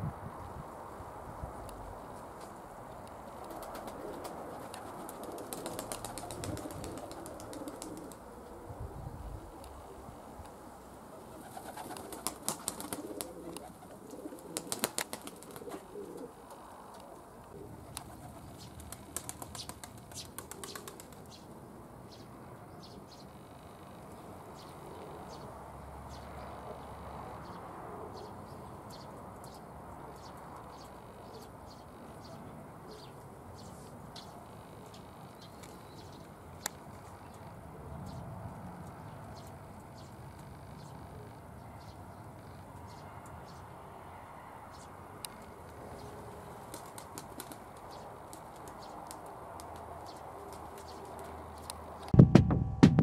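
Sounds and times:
pigeons cooing: 3.5 - 10.0, 11.1 - 21.4
wings clapping: 11.6 - 13.7, 14.5 - 15.8, 18.8 - 21.2.

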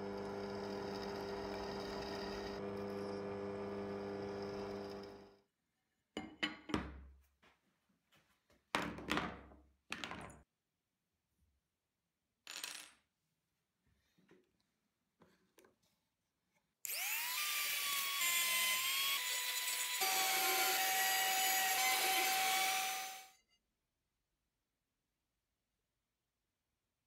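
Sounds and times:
drill press motor humming: 0.0 - 5.4.

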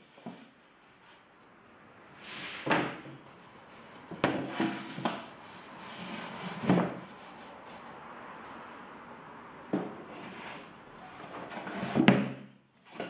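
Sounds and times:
board edges scraping: 4.1 - 7.8.

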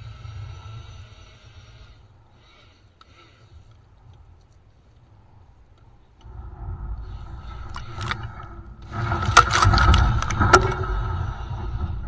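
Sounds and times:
tines striking debris: 8.9 - 10.8.

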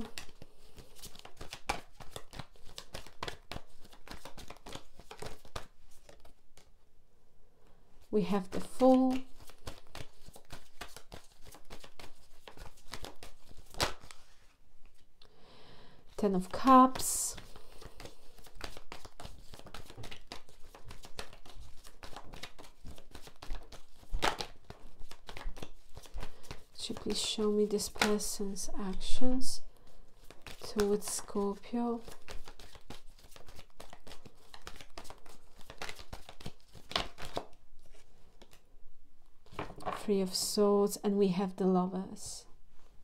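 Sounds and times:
cards being shuffled: 0.0 - 6.7, 8.4 - 15.1, 16.4 - 28.7, 30.1 - 38.6, 39.4 - 40.1.

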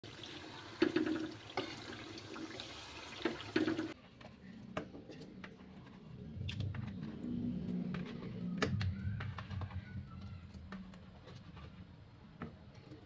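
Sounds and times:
oil sizzling: 0.0 - 4.0.

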